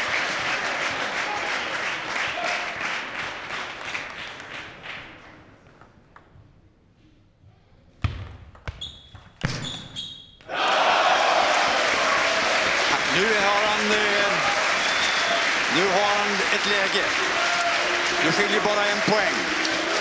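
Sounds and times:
crowd applause: 0.0s - 5.0s, 10.5s - 20.0s.

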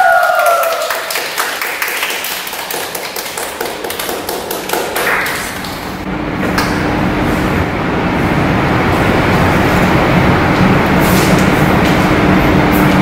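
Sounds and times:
small group clapping: 0.0s - 6.0s.

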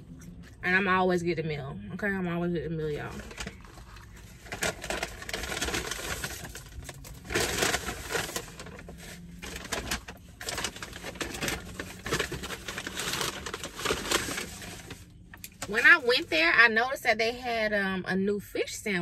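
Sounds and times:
paper bag crinkling: 2.9s - 16.4s.

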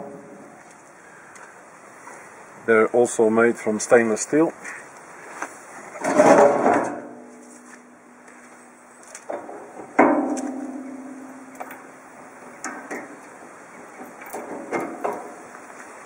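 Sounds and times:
sharp metallic clang ringing: 10.0s - 12.0s.

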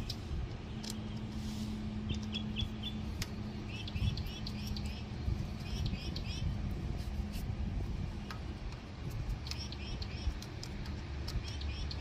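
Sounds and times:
small birds chirping: 0.0s - 6.7s, 9.0s - 12.0s
steady low hum: 0.0s - 12.0s.

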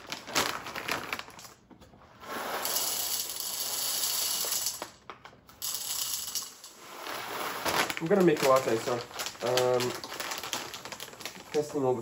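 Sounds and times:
coffee beans pouring into hopper: 2.2s - 4.8s, 5.6s - 11.9s.

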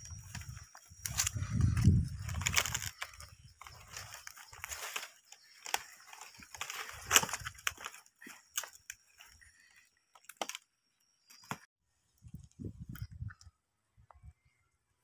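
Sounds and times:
dry palm leaf crackling: 0.0s - 10.6s.

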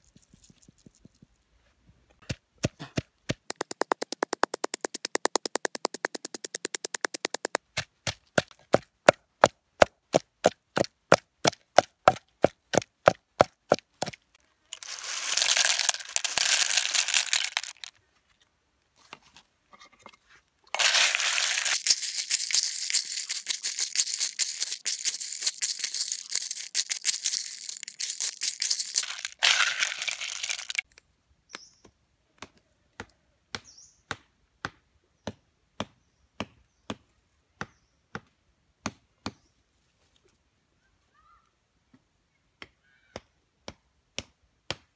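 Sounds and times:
pestle pounding in wooden mortar: 2.3s - 8.8s
shells rattling in mortar: 14.8s - 17.9s, 20.8s - 30.8s.

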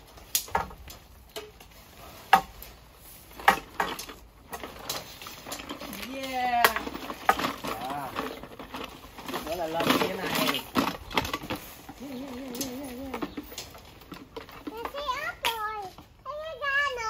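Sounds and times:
sharp clacks and knocks: 3.3s - 16.2s.

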